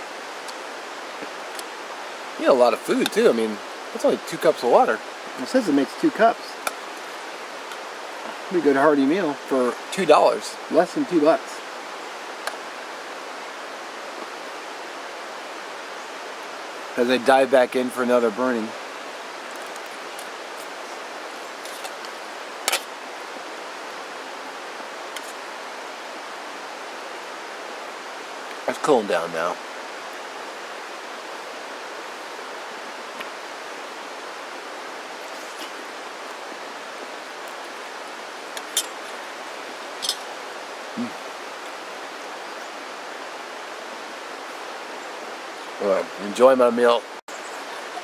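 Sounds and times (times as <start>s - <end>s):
person humming low: 41.0s - 41.2s.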